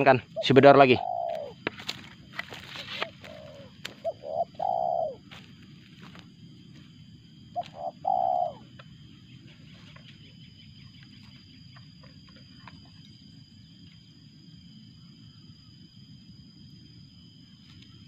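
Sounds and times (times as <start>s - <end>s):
dove cooing: 0.0s - 6.2s, 7.5s - 10.3s
faint high whine: 0.0s - 18.0s.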